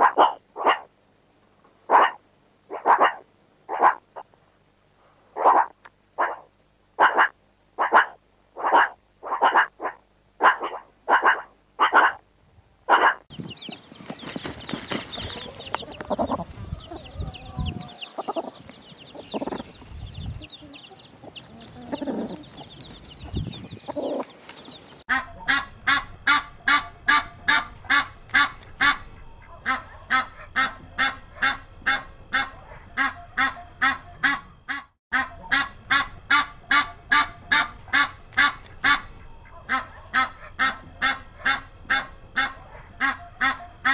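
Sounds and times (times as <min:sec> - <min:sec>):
hen clucking: 0:00.0 - 0:00.9, 0:01.9 - 0:04.3, 0:05.4 - 0:12.2, 0:12.9 - 0:43.9
meerkats calling: 0:00.0 - 0:00.9, 0:01.8 - 0:04.4, 0:05.3 - 0:12.3, 0:12.9 - 0:43.9
ducks quacking: 0:01.9 - 0:04.3, 0:05.4 - 0:12.2, 0:12.9 - 0:43.9
chicks peeping: 0:12.9 - 0:34.6.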